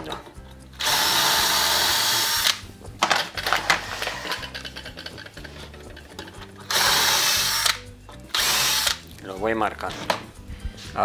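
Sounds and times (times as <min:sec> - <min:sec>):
cordless drill boring wood: 0:00.8 - 0:02.6, 0:06.7 - 0:09.0.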